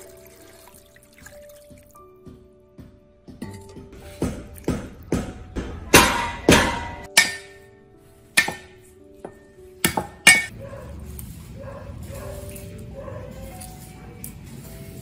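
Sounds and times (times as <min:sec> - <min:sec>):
cleaver striking chopping block: 0:04.2 - 0:07.6, 0:08.4 - 0:08.8, 0:09.8 - 0:10.5
metal bowl set on wooden table: 0:08.7 - 0:15.0.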